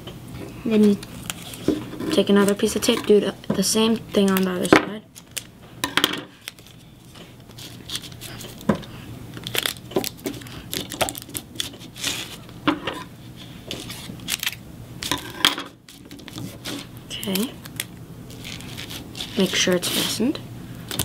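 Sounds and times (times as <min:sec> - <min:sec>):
paper crinkling: 0:00.8 - 0:02.9, 0:06.3 - 0:08.7, 0:09.3 - 0:12.6, 0:13.4 - 0:15.2, 0:15.8 - 0:20.3.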